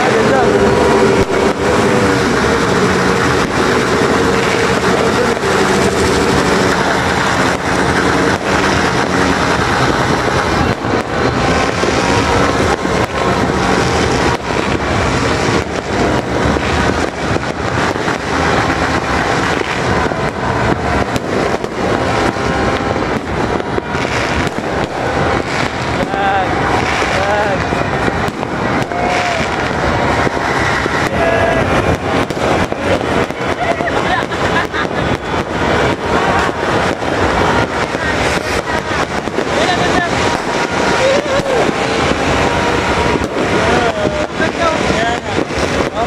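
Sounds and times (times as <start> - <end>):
fireworks bangs and crackles: 0.0 - 46.0.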